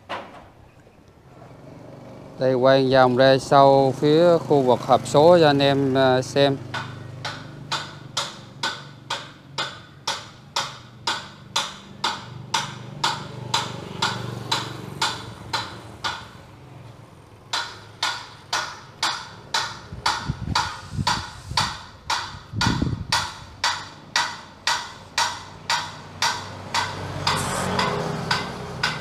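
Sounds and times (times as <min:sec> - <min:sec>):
sharp knocks: 0:06.7 - 0:16.5, 0:17.5 - 0:29.0.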